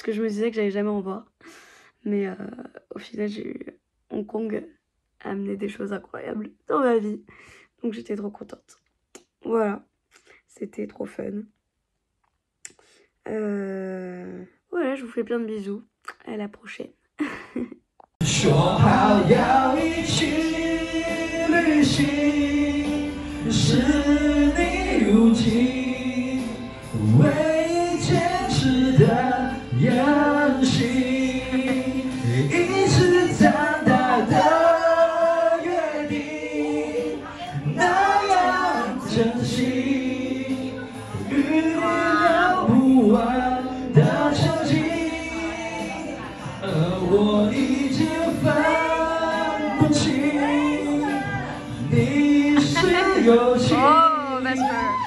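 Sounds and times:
group of people singing: 18.2s - 55.0s.

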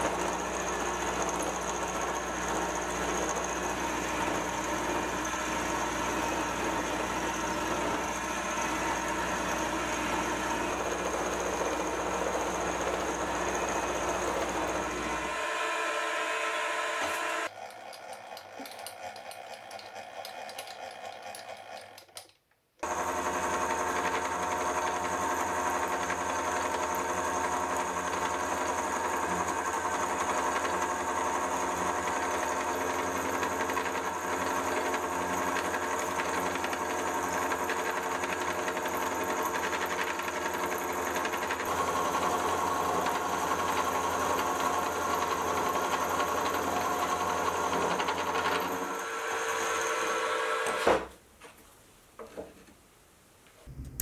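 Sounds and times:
milling machine cutting steel: 0.1s - 22.1s.

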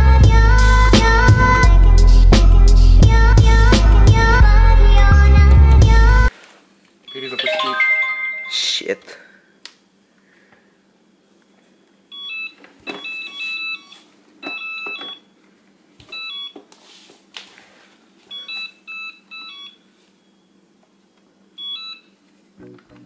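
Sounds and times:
short electronic beeps: 7.1s - 8.5s.

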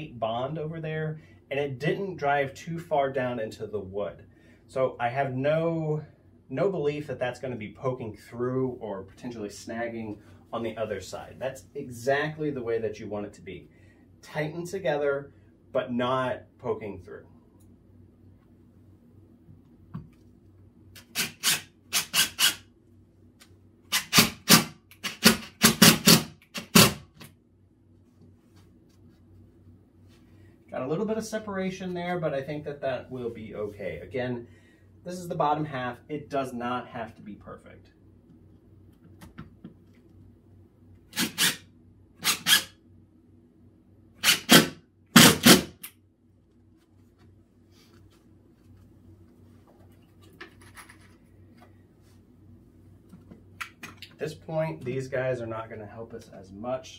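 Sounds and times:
impact driver bursts: 21.0s - 22.6s, 23.9s - 27.2s, 41.1s - 41.6s, 42.2s - 42.7s, 44.2s - 45.9s.

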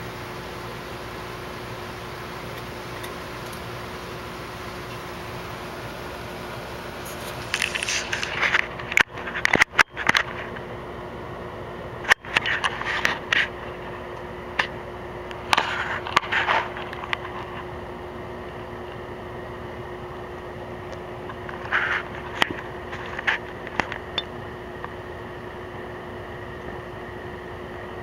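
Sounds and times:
fan-like hum: 0.0s - 28.0s
scraping crackling noise: 6.7s - 10.7s, 12.0s - 14.0s, 15.3s - 17.8s, 21.2s - 24.1s.

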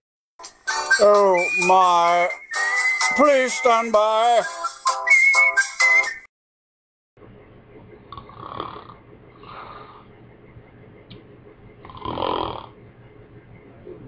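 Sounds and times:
man snoring: 8.1s - 10.0s, 11.9s - 12.8s.

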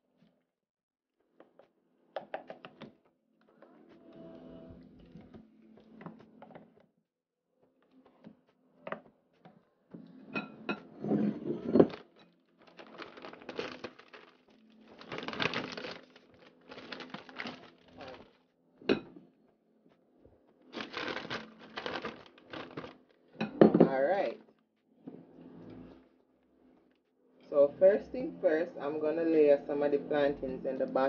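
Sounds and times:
rustling: 12.6s - 18.4s, 20.8s - 23.0s.

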